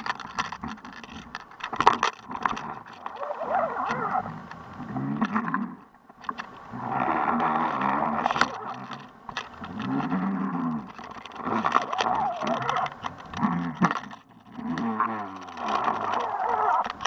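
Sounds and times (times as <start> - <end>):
scattered clicks: 0.0 - 17.0
underwater rushing water: 2.7 - 5.8, 6.4 - 13.4.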